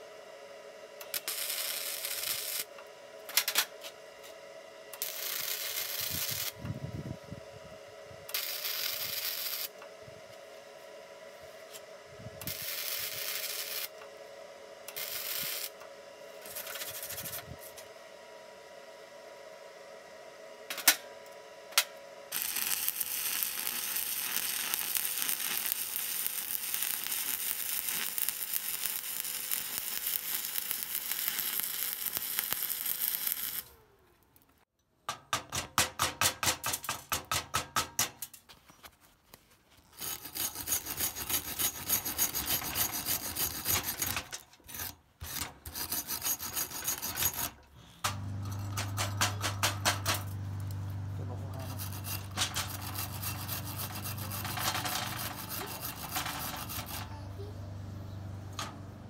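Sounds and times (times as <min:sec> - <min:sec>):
welding arc crackling: 0:01.0 - 0:02.7, 0:05.0 - 0:06.6, 0:08.3 - 0:09.8, 0:12.5 - 0:14.0, 0:14.9 - 0:15.8, 0:22.3 - 0:33.8, 0:48.9 - 0:57.1
scraping over metal weld: 0:16.4 - 0:17.8, 0:22.4 - 0:33.7, 0:39.8 - 0:50.7, 0:51.5 - 0:57.2.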